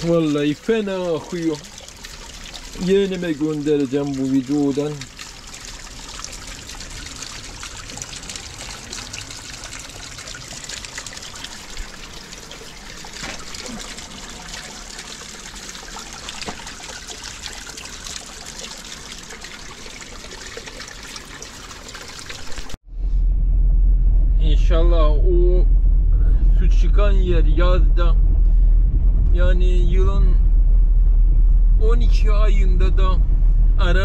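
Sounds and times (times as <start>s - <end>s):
water trickling over stones: 0.0s - 22.8s.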